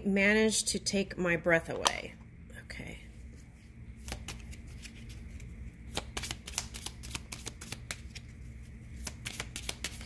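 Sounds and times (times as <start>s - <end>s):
cards being shuffled: 4.0s - 10.0s.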